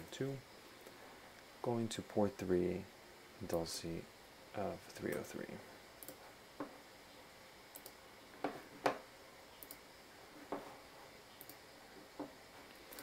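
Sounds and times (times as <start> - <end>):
computer mouse clicking: 6.0 - 6.2, 7.7 - 8.0, 9.6 - 9.8, 11.4 - 11.6, 12.2 - 13.0
faint high ticks: 9.6 - 9.8, 11.4 - 11.6.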